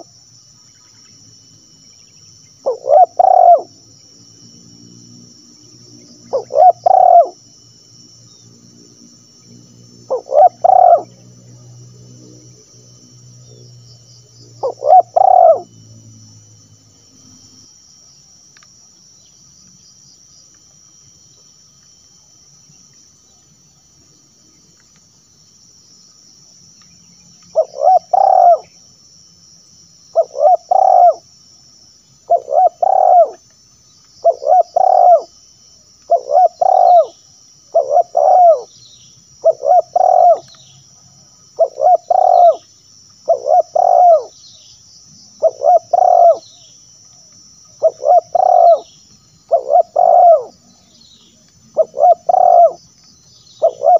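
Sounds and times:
high insect buzz: 0:00.0 - 0:53.9
dove cooing: 0:02.6 - 0:03.7, 0:06.2 - 0:07.4, 0:10.1 - 0:11.2, 0:14.6 - 0:15.7, 0:27.6 - 0:28.7, 0:30.1 - 0:31.2, 0:32.3 - 0:33.4, 0:34.2 - 0:35.3, 0:36.1 - 0:38.7, 0:39.4 - 0:40.5, 0:41.6 - 0:42.6, 0:43.3 - 0:44.3, 0:45.4 - 0:46.4, 0:47.8 - 0:48.9, 0:49.5 - 0:50.6, 0:51.7 - 0:52.8, 0:53.6 - 0:53.9.

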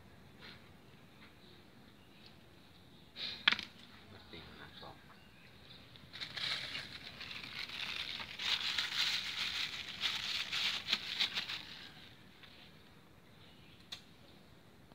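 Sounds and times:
crumpled sheet crinkling: 0:05.9 - 0:12.2.

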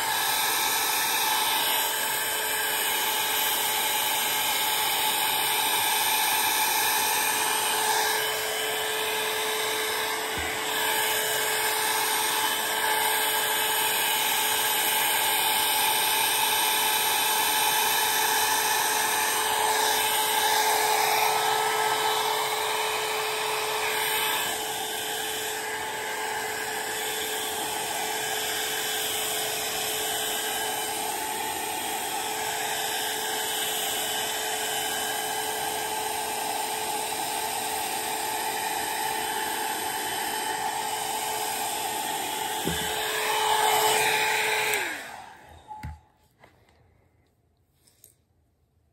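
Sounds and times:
hair dryer motor whine: 0:00.0 - 0:46.2.

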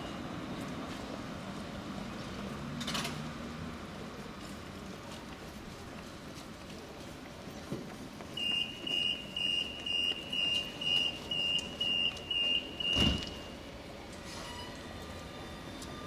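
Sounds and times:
short high-pitched beeps: 0:08.4 - 0:13.3
thump: 0:12.9 - 0:13.3.

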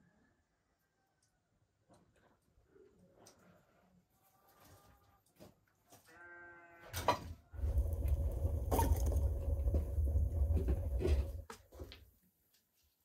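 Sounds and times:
faint animal bleat: 0:05.9 - 0:07.1
wood fire rumbling and crackling: 0:07.6 - 0:12.0.

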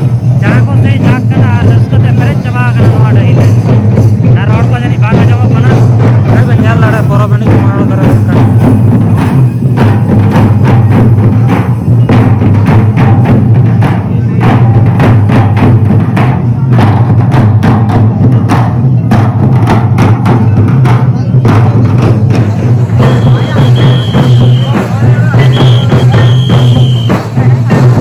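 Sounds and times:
barrel drums beaten rhythmically: 0:00.0 - 0:28.0.

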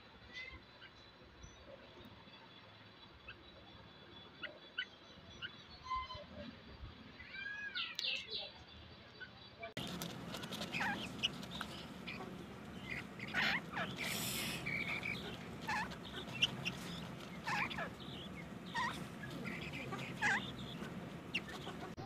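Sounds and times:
birds calling: 0:09.8 - 0:22.0
low background rumble: 0:09.8 - 0:22.0.

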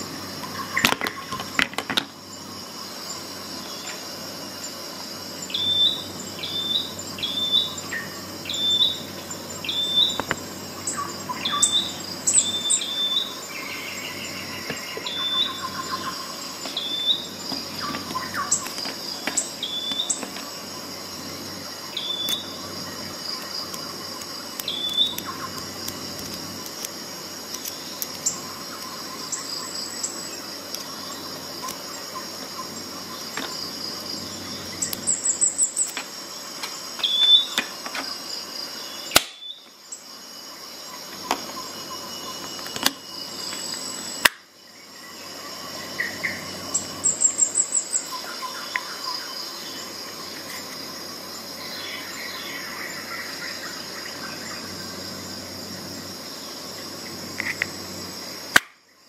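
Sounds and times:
bird chirping: 0:05.4 - 0:20.7, 0:21.6 - 0:25.9, 0:27.6 - 0:36.0, 0:37.0 - 0:37.6.

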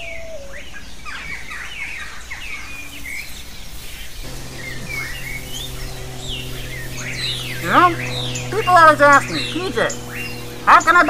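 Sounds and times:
wild birds chirping: 0:03.7 - 0:11.0
outdoor background noise: 0:04.0 - 0:11.0
low steady note: 0:04.2 - 0:11.0.

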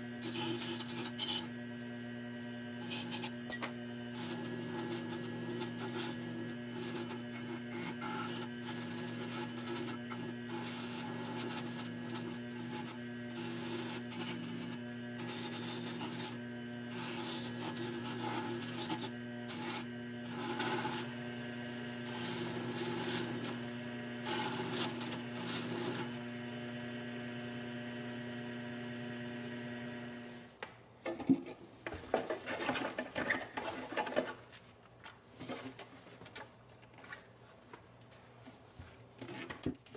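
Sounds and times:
lathe motor humming: 0:00.0 - 0:30.5
metal grinding on abrasive wheel: 0:00.2 - 0:01.6, 0:02.8 - 0:30.4.

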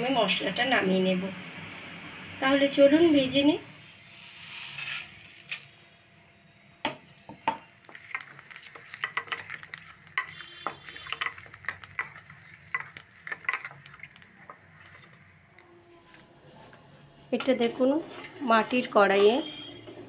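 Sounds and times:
spices tipped into pan hissing: 0:04.1 - 0:05.7, 0:07.6 - 0:14.2
seeds rattling against steel pan: 0:04.1 - 0:05.8, 0:07.6 - 0:15.3.

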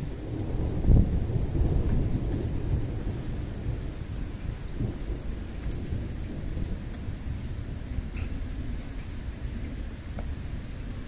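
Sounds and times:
rolling thunder: 0:00.0 - 0:08.8
steady rain: 0:00.0 - 0:11.0.

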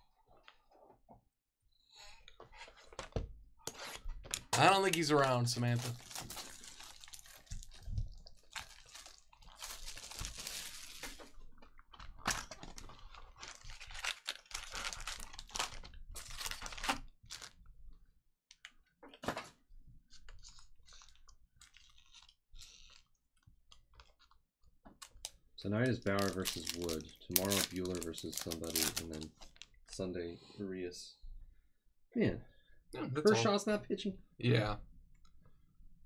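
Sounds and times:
card packs crinkling and rustling: 0:04.5 - 0:17.6, 0:25.0 - 0:29.7.

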